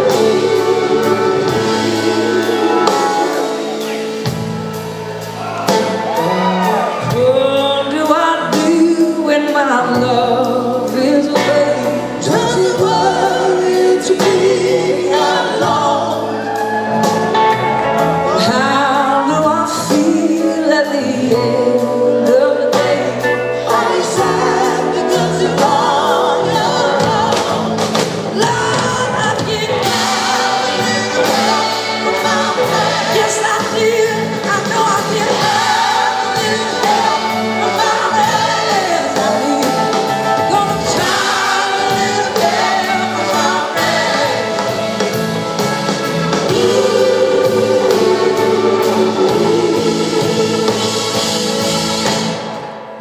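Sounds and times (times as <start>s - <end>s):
group singing: 0.0s - 4.2s, 11.1s - 16.8s, 18.2s - 53.0s
horn section: 0.0s - 7.6s, 28.8s - 53.0s
live band playing: 0.0s - 53.0s.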